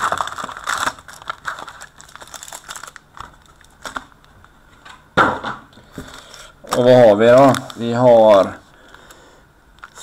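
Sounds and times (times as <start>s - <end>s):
foil wrappers crinkling: 0.0s - 4.3s, 6.0s - 9.2s.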